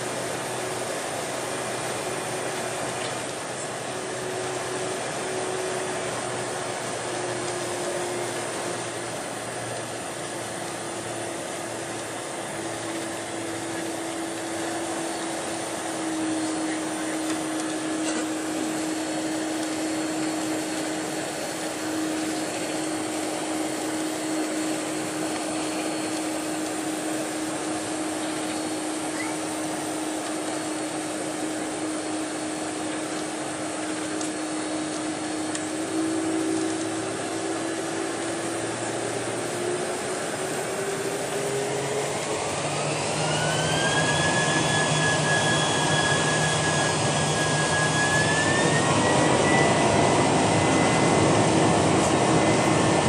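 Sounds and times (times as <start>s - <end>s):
airflow and cabin noise hiss: 0.0s - 43.6s, 45.8s - 53.0s
jet engine whine: 0.0s - 53.0s.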